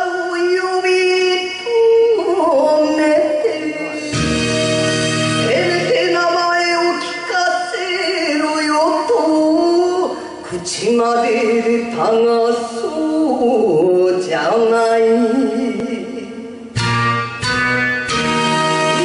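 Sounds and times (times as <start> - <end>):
woman singing: 0.0 - 4.2, 5.4 - 16.7
backing music: 3.0 - 6.9, 16.7 - 19.0.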